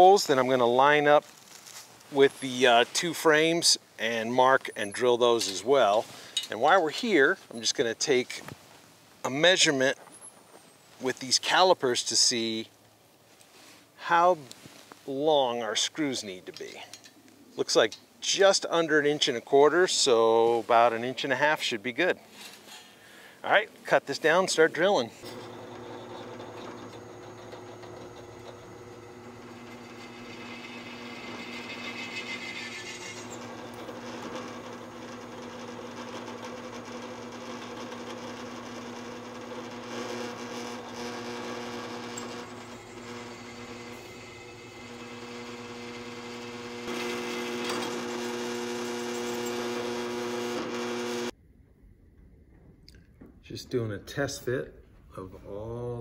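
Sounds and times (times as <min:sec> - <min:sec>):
drill press drilling steel: 0:24.8 - 0:51.3.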